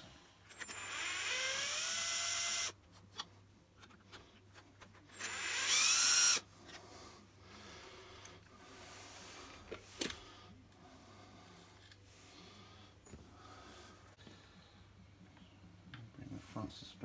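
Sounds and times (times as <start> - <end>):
cordless drill whining: 0.5 - 2.8, 5.1 - 6.5.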